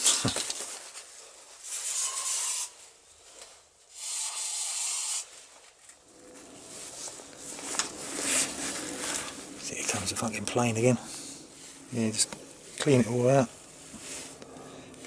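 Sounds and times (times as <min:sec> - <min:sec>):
aerosol spray can hissing: 0:04.0 - 0:05.3
aircraft drone overhead: 0:06.0 - 0:15.0.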